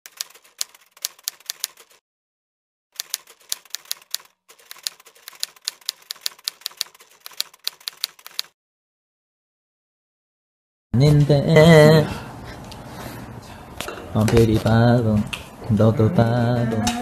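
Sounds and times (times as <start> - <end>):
typewriter key clacks: 0.1 - 2.0, 3.0 - 8.5.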